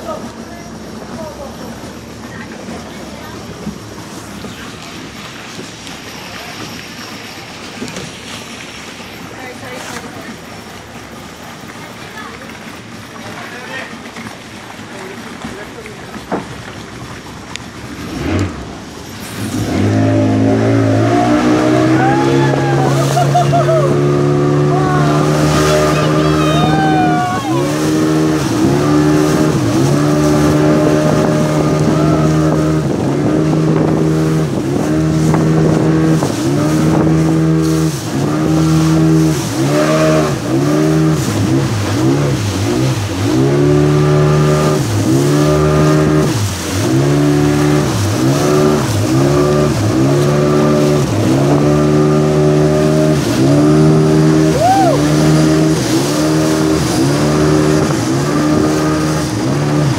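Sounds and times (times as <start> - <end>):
speedboat engine running hard: 0.0 - 59.9.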